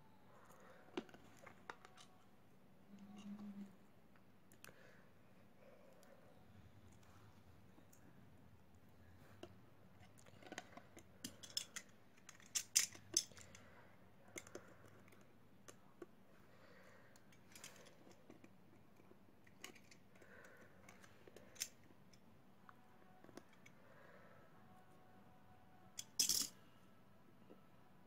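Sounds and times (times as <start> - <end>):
small tools tapping phone parts: 10.4 - 13.6.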